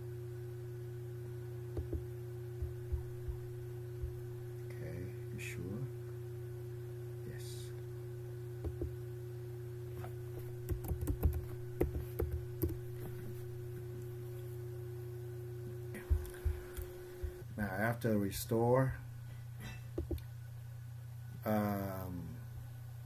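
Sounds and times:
steady electrical hum: 0:00.0 - 0:23.0
keyboard keystrokes: 0:10.7 - 0:12.8.

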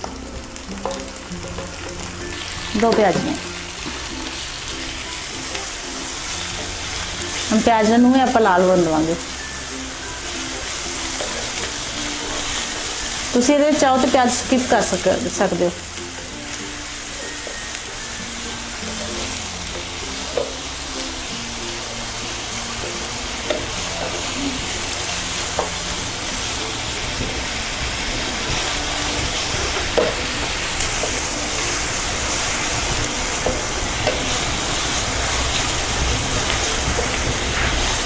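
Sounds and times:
spatula tapping a pan: 0:00.0 - 0:02.2, 0:18.8 - 0:20.7, 0:22.8 - 0:24.3, 0:24.9 - 0:25.8, 0:27.2 - 0:31.7, 0:33.0 - 0:34.4
onions sizzling in oil: 0:00.0 - 0:38.0.

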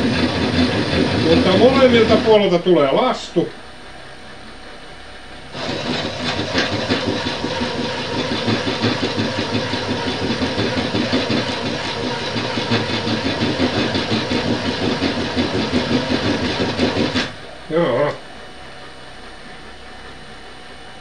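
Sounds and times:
drill press grinding into steel: 0:00.0 - 0:03.1, 0:05.5 - 0:18.2.

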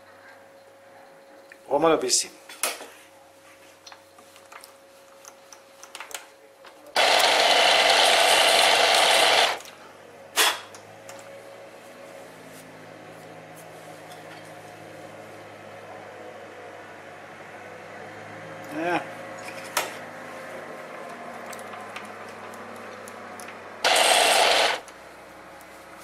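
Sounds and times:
metal lathe running: 0:07.0 - 0:09.6, 0:23.8 - 0:24.8.

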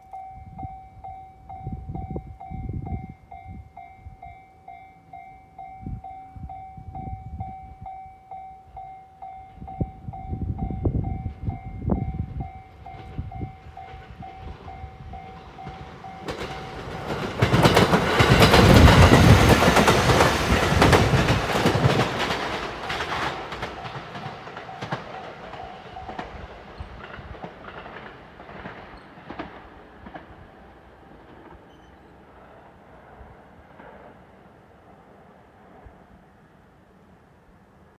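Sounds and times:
train wheels clattering: 0:11.3 - 0:32.6.

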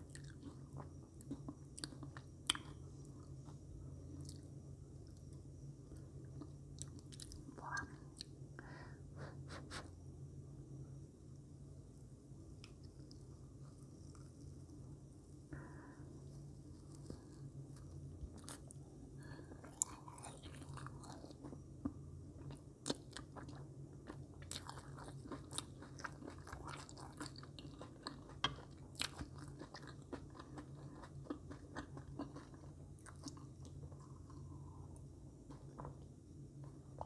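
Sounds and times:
chewing marshmallows: 0:00.0 - 0:08.3, 0:16.6 - 0:37.0
steady low hum: 0:00.0 - 0:37.0.

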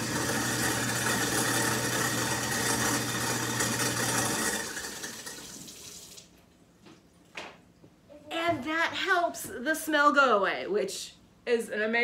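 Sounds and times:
garbage disposal grinding: 0:00.0 - 0:06.3.

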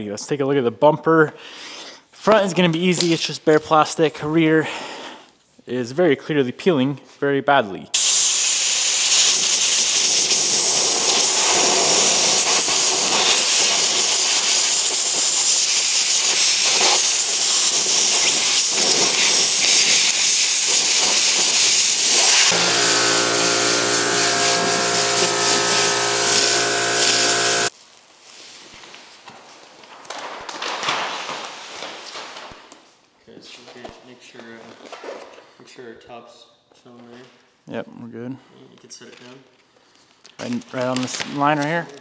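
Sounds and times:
compressed air blow gun hissing: 0:08.0 - 0:27.7
steady humming tone: 0:22.4 - 0:27.7.

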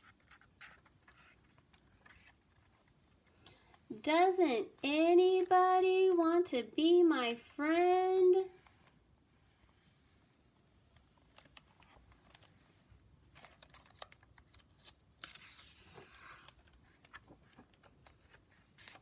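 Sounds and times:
paper rustle: 0:00.0 - 0:03.0, 0:11.2 - 0:19.0.

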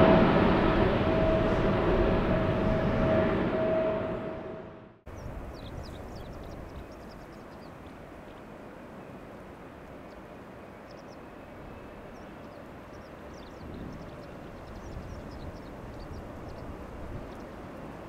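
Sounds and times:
distant jet airliner rumble: 0:00.0 - 0:18.0
small birds chirping: 0:05.1 - 0:08.4, 0:10.0 - 0:18.0.

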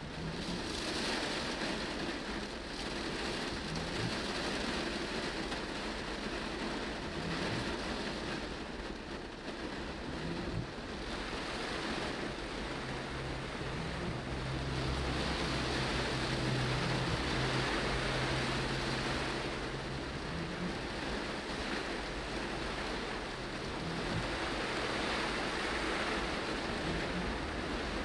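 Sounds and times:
heavy rain on car roof: 0:00.0 - 0:28.0
windscreen wipers sweeping: 0:00.0 - 0:28.0
low steady hum: 0:10.0 - 0:28.0.

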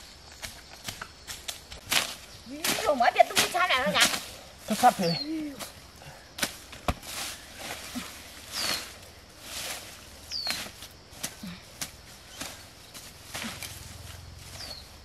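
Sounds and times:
knife scraping in soil: 0:07.0 - 0:14.8.

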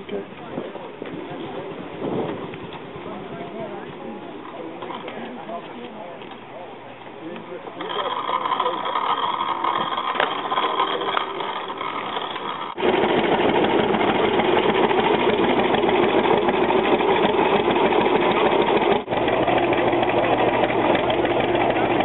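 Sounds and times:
quiet machinery running: 0:02.6 - 0:22.0
tractor engine running: 0:07.0 - 0:22.0.

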